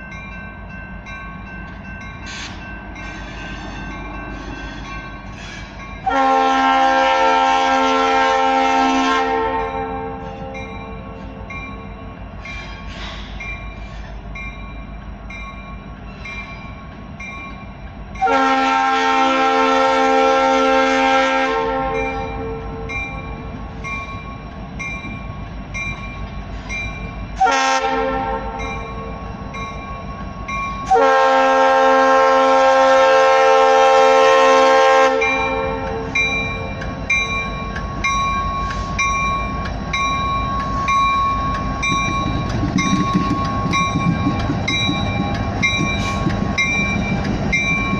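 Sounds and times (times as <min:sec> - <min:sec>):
crossing warning bell ringing: 0:00.0 - 0:47.9
train air horn blasts: 0:06.0 - 0:11.2, 0:18.2 - 0:22.9, 0:27.4 - 0:28.8, 0:30.8 - 0:36.3.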